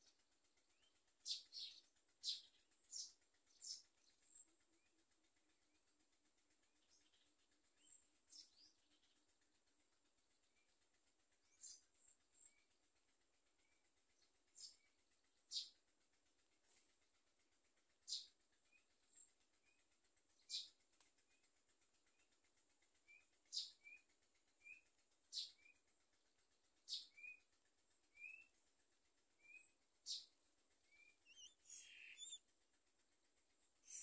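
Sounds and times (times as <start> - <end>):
nestlings peeping: 30.0 - 32.5
sharp high bird calls: 31.0 - 32.4.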